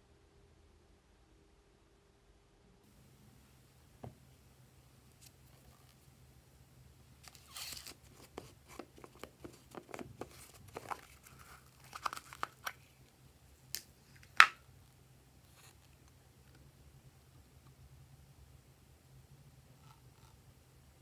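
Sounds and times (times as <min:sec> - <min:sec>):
plastic crinkling: 0:07.2 - 0:13.1.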